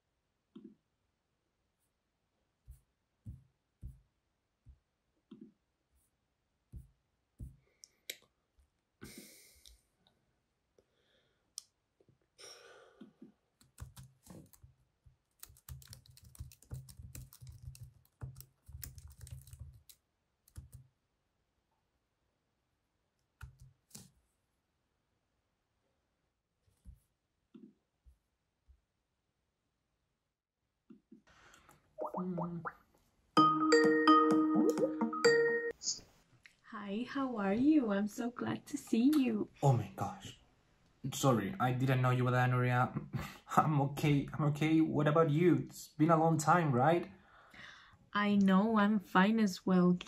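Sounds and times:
typing on computer keyboard: 0:13.6 - 0:14.6, 0:15.4 - 0:20.9.

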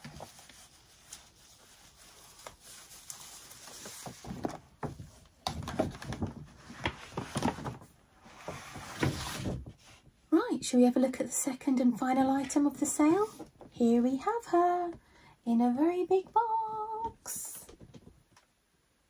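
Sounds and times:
paper bag rustling and crinkling: 0:00.0 - 0:09.8.

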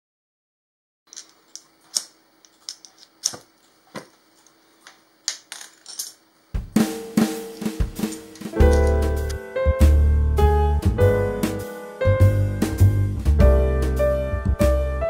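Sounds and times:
small metal items clicking on marble: 0:01.1 - 0:03.4, 0:04.8 - 0:06.2, 0:08.1 - 0:09.0
drum-kit music: 0:06.5 - 0:15.0.

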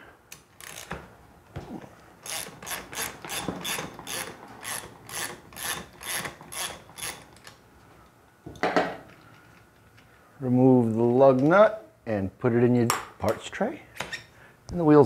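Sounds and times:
ratchet pawl clicking: 0:00.6 - 0:00.9, 0:02.2 - 0:07.4.

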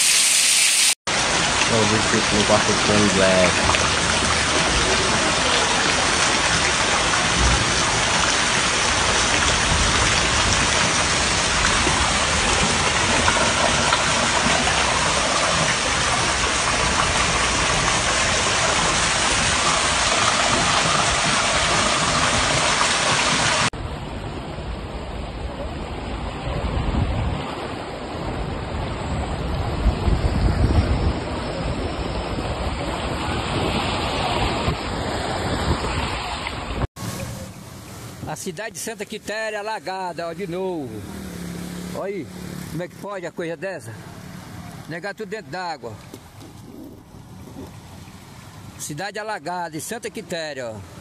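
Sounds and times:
heavy rain pouring: 0:00.0 - 0:23.7, 0:45.7 - 0:51.0
rushing floodwater: 0:00.0 - 0:51.0.

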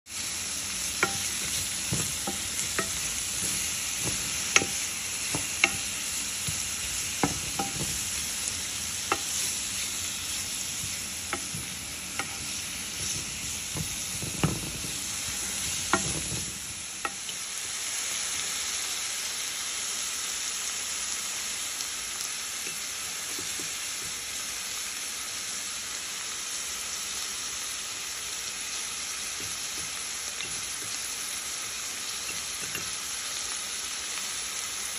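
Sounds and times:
vegetables sizzling in a pot: 0:00.1 - 0:34.9
wooden spoon knocking on a pot: 0:01.0 - 0:08.2, 0:09.1 - 0:09.4, 0:10.8 - 0:17.2.

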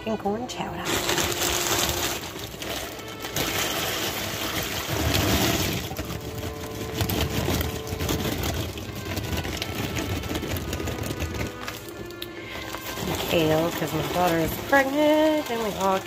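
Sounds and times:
corn splashing into water: 0:00.8 - 0:16.0.

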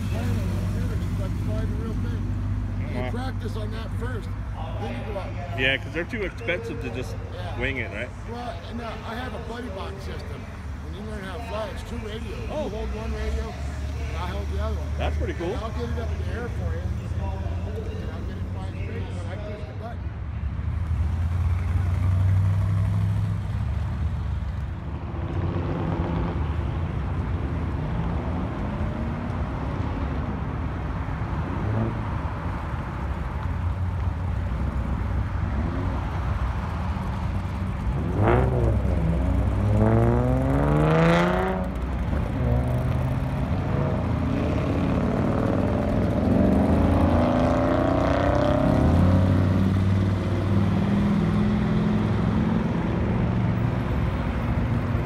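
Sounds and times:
car engines idling: 0:00.0 - 0:25.0, 0:28.4 - 0:55.0
car engine revving and pulling away: 0:20.7 - 0:55.0.

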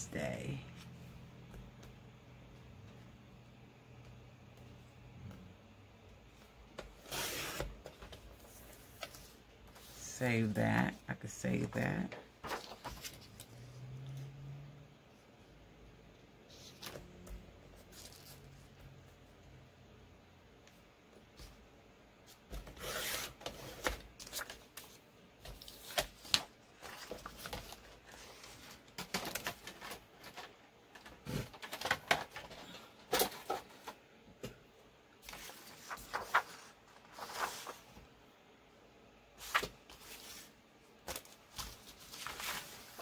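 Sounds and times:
paper rustling and sliding: 0:06.9 - 0:10.0, 0:12.4 - 0:13.8, 0:35.2 - 0:38.1, 0:39.4 - 0:43.0.

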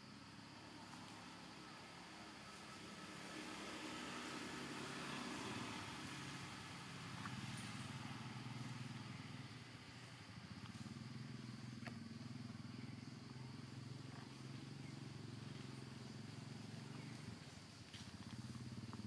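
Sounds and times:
low engine hum: 0:00.0 - 0:19.0
faint ticks: 0:10.6 - 0:11.0.

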